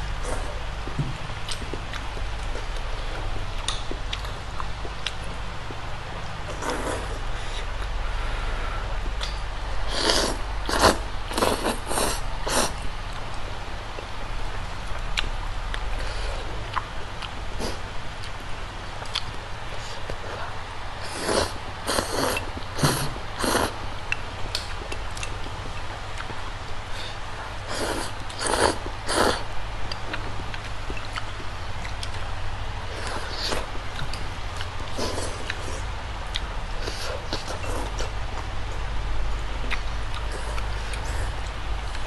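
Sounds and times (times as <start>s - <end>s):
faint chewing clicks: 0.8s - 2.9s, 3.6s - 7.1s, 13.1s - 16.1s, 19.0s - 20.2s, 24.1s - 26.8s, 27.7s - 32.3s, 39.6s - 42.0s.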